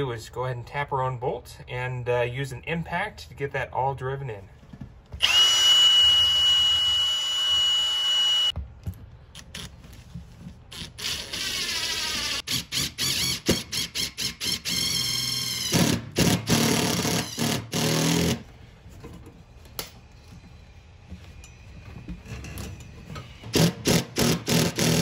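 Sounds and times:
cordless drill whining: 5.2s - 8.5s, 10.8s - 18.4s
impact driver hammering: 15.7s - 18.4s, 23.5s - 25.0s.

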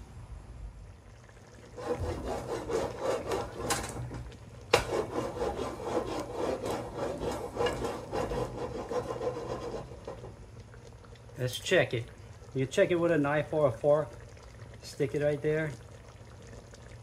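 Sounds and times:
metal pot scraping on burner grate: 1.7s - 10.4s.

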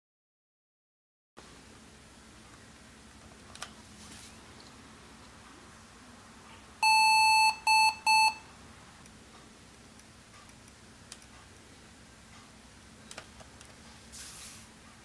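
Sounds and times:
computer speaker beeps: 6.8s - 8.4s.

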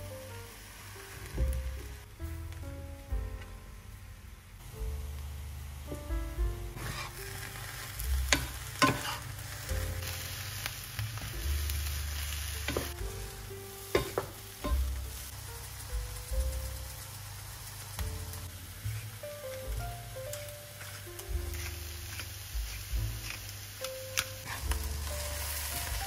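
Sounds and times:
eggplant sizzling in pan: 0.0s - 2.2s, 3.4s - 26.0s
spatula scraping pan: 6.8s - 7.5s, 8.3s - 9.3s, 20.3s - 23.5s
spatula knocking pan: 12.7s - 13.0s, 13.9s - 15.0s.

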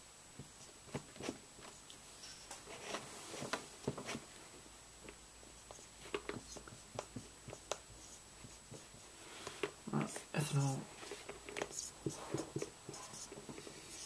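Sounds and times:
marker scratching on whiteboard: 5.6s - 14.0s.

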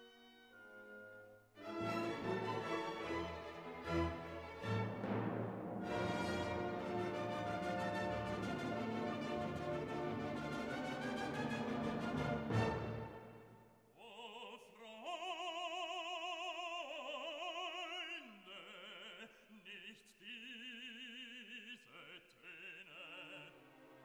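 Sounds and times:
operatic voice singing with vibrato: 14.0s - 23.8s.

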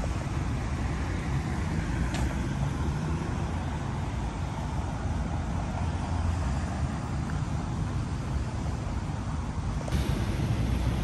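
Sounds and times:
outdoor background rumble and hiss: 0.0s - 11.0s.

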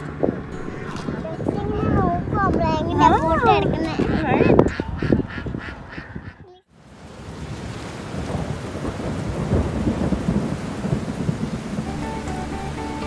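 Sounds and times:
low rumble: 0.0s - 3.9s
short duck quacks: 4.0s - 6.6s
heavy rain on water and plants: 6.7s - 13.0s.

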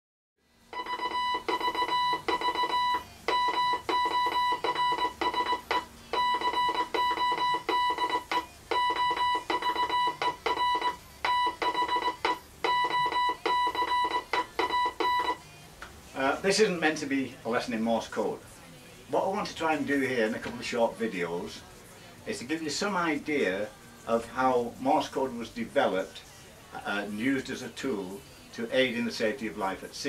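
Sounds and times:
morse code buzzy tone: 0.7s - 15.4s.

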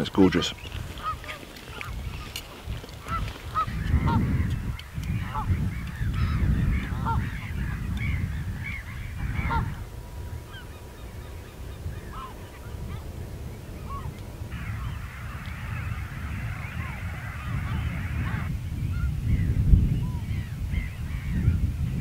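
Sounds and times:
geese honking: 0.2s - 2.4s, 3.0s - 18.5s.

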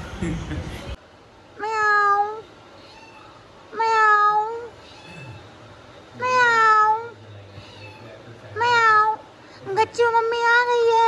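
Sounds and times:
kitten meowing: 1.6s - 5.3s.

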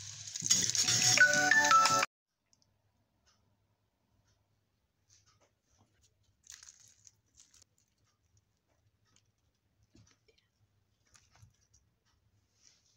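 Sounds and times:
crisp flatbread tearing: 6.3s - 8.2s.

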